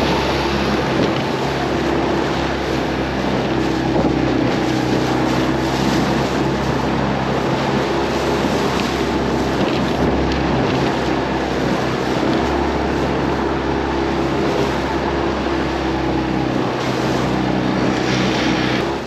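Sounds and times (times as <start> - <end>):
wind noise: 0.0 - 13.4
outboard motor running: 0.0 - 19.0
water rushing: 0.0 - 19.0.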